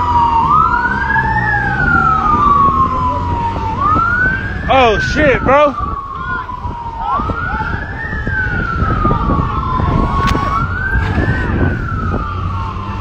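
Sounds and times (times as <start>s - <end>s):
police siren wailing: 0.0s - 13.0s
wind rumble on microphone: 0.0s - 13.0s.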